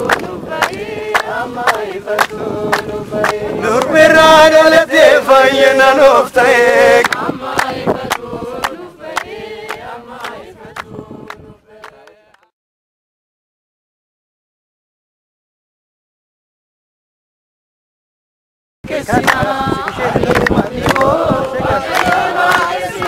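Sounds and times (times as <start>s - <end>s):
hand clapping: 0.0s - 4.1s, 7.0s - 12.5s, 19.1s - 23.0s
group singing a hymn: 0.0s - 12.5s, 18.8s - 23.0s.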